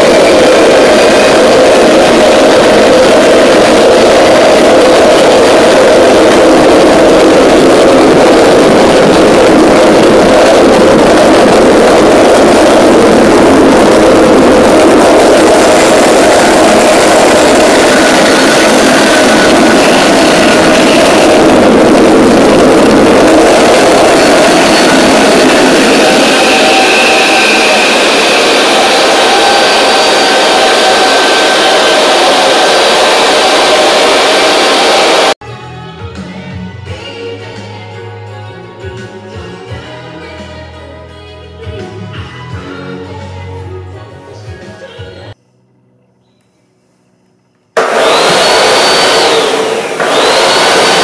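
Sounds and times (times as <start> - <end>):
faint high whine: 0.0 - 35.4
gas turbine roaring: 0.0 - 35.4, 47.8 - 51.0.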